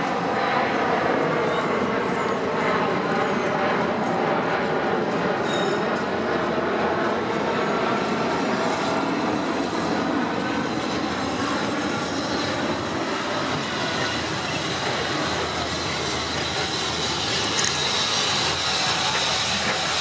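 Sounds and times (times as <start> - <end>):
steam train rumbling past: 7.1 - 20.0.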